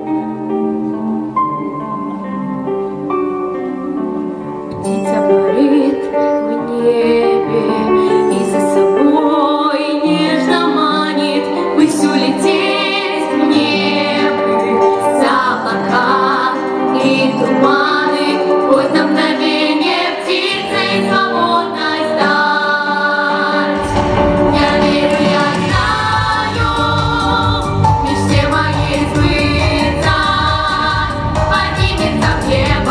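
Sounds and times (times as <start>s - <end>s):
girls singing in harmony: 6.6s - 32.9s
low bass part: 23.8s - 27.0s.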